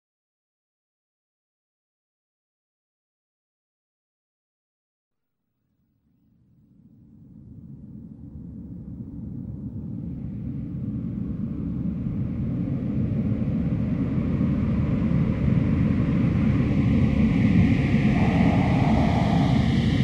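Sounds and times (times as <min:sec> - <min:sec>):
deep rumbling roar: 0:17.8 - 0:20.0.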